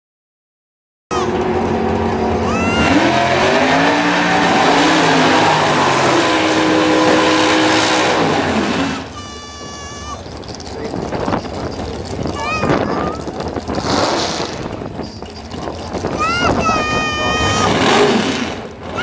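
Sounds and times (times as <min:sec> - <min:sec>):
engine revving hard: 0:01.2 - 0:09.2, 0:13.6 - 0:14.9, 0:15.9 - 0:19.0.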